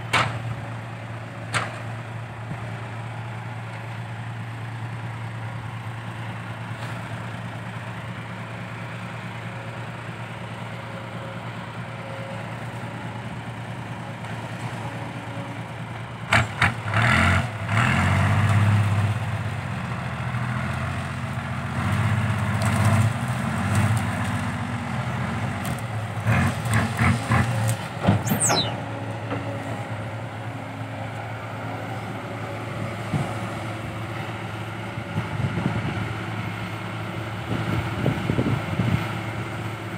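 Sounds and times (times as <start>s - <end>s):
truck diesel engine idling: 0.5s - 16.4s
engine revving in surges: 25.6s - 28.8s
brief falling whistle: 28.2s - 28.8s.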